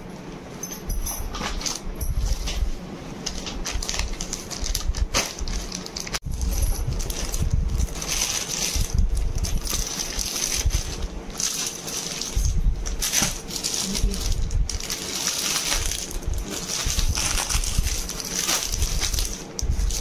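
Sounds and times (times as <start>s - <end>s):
plastic packaging crinkling: 3.2s - 20.0s.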